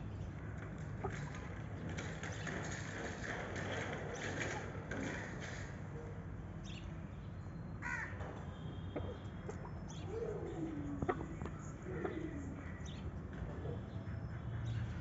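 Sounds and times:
bird calls: 8.8s - 15.0s.

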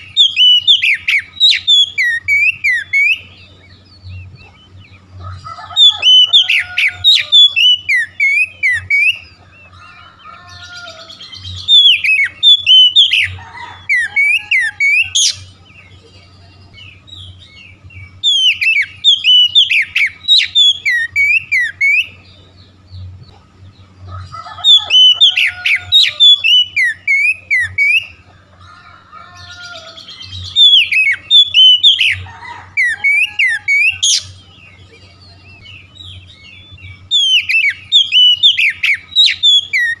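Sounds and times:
bird singing whistled notes: 0.0s - 9.7s, 10.3s - 23.2s, 24.4s - 28.2s, 29.4s - 40.0s
faint low hum: 0.0s - 40.0s.

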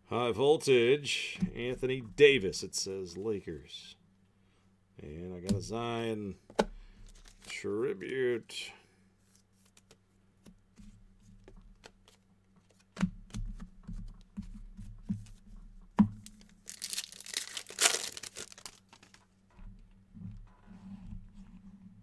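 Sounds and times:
card pack wrappers tearing and crinkling: 7.1s - 7.6s, 16.2s - 19.2s.

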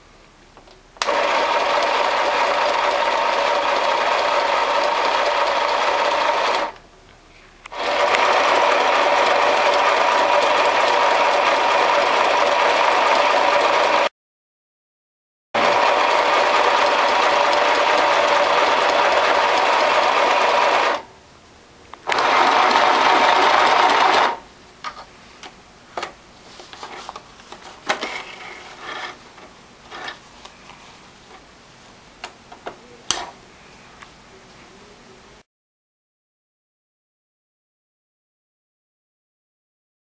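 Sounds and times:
sewing machine whirring: 1.0s - 6.8s, 7.7s - 14.1s, 15.6s - 21.1s, 22.0s - 24.4s.

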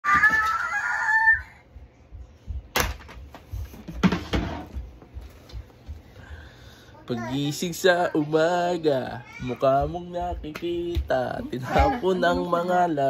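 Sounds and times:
plastic box clattering on floor: 2.8s - 4.8s.

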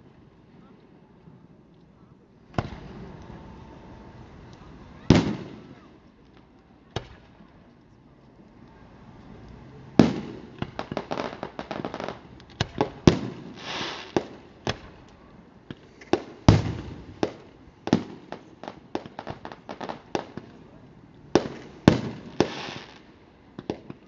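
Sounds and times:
firework hiss: 10.0s - 15.0s, 21.4s - 23.1s.

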